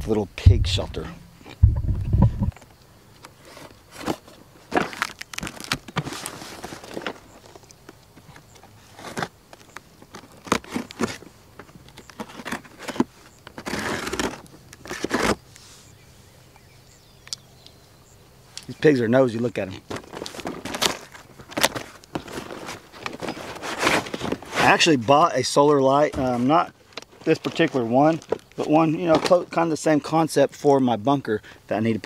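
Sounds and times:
cardboard flaps rustling: 0:03.4 - 0:07.6, 0:19.8 - 0:24.9.

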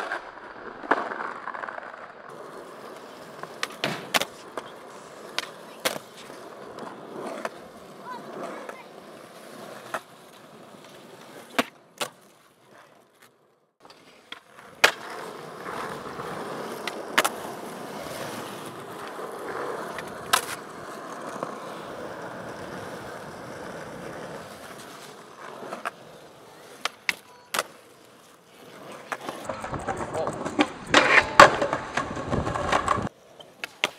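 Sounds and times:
skateboard clacking on ground: 0:00.0 - 0:33.9
skateboard wheels rolling on concrete: 0:00.0 - 0:33.9.

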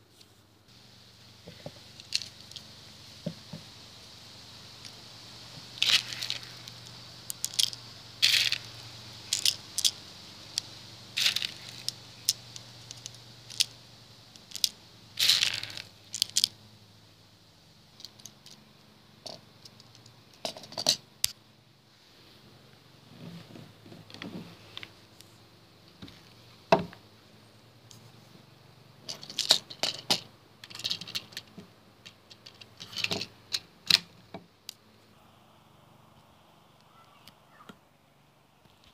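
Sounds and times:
plastic clicks and rattles: 0:05.8 - 0:08.7, 0:09.3 - 0:13.7, 0:14.4 - 0:16.6, 0:18.0 - 0:18.6, 0:19.2 - 0:21.4, 0:29.1 - 0:34.8.

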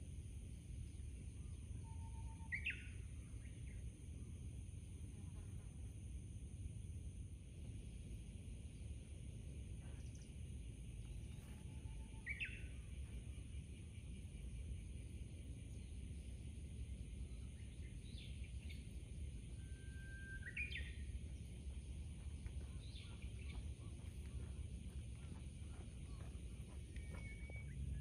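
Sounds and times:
low background rumble: 0:00.0 - 0:28.0
bird chirps: 0:00.9 - 0:03.8, 0:11.0 - 0:15.1, 0:19.6 - 0:21.5, 0:22.5 - 0:24.6, 0:25.2 - 0:28.0.

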